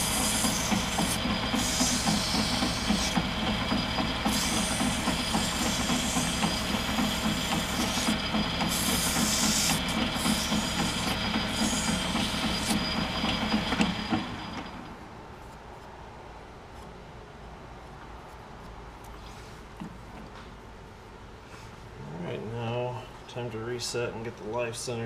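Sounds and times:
metal lathe running: 0.0s - 15.0s.

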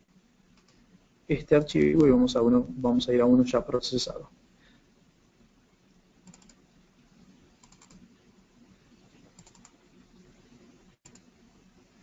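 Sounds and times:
computer mouse clicking: 0.5s - 0.8s, 6.2s - 6.6s, 7.6s - 8.1s, 9.3s - 9.8s, 11.0s - 11.3s.

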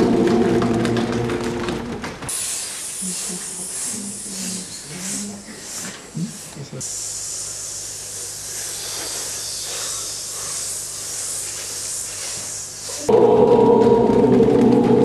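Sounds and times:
group hissing steadily: 2.3s - 14.2s
group singing a held tone: 13.1s - 15.0s.

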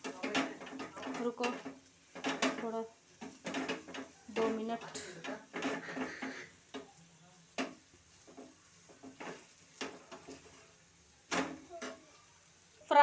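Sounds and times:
spoon scraping on griddle: 0.0s - 12.7s.

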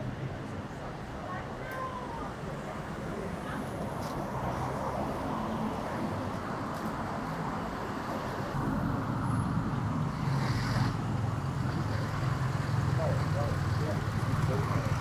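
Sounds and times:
vehicles passing: 0.0s - 15.0s
engine approaching: 8.5s - 15.0s.

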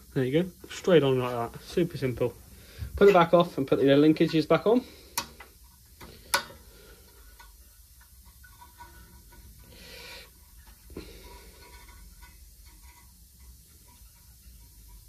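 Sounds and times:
small clicks of engine linkages: 5.1s - 9.5s.

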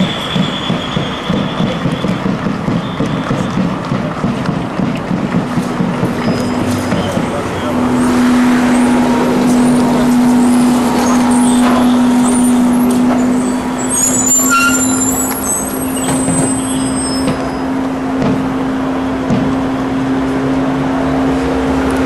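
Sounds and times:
high whistling tones: 0.0s - 3.5s, 9.7s - 17.7s
crowd of people marching: 0.0s - 22.0s.

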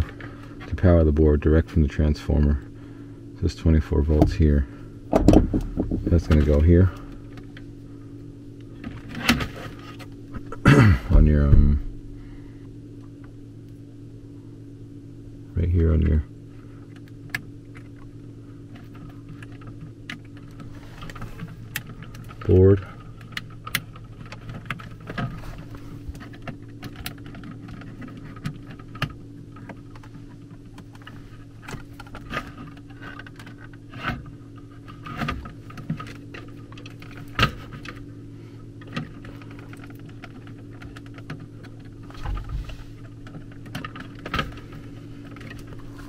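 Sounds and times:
low hum: 0.0s - 46.0s.

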